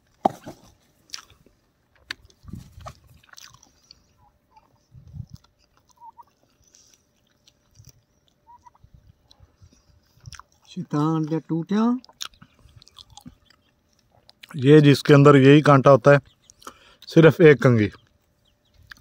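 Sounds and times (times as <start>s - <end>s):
person chewing food: 1.0s - 10.7s, 12.0s - 14.6s, 16.4s - 17.1s, 18.6s - 19.0s.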